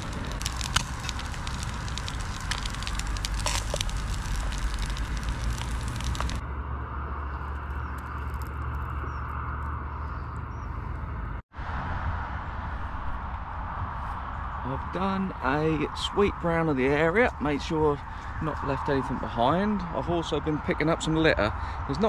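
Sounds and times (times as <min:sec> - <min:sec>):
crackling: 0:00.0 - 0:06.4, 0:07.4 - 0:10.5
distant road traffic drone: 0:00.0 - 0:22.0.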